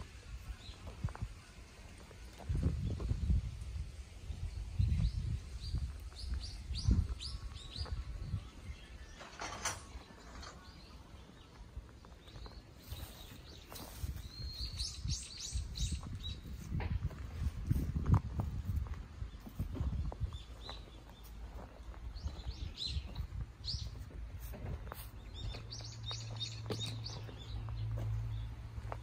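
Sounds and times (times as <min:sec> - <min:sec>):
small birds chirping: 0:00.0 - 0:16.8, 0:18.4 - 0:29.0
footsteps on dry grass: 0:10.7 - 0:29.0.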